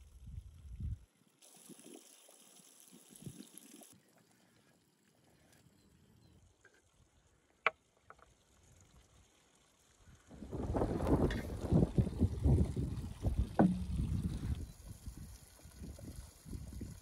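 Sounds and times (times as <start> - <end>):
faint hiss: 1.0 - 6.2.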